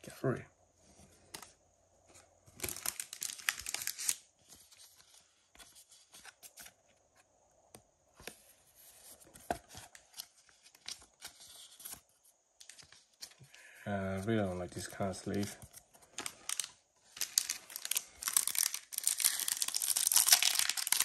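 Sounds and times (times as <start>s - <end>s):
trading cards rustling: 1.1s - 6.8s, 12.6s - 21.0s.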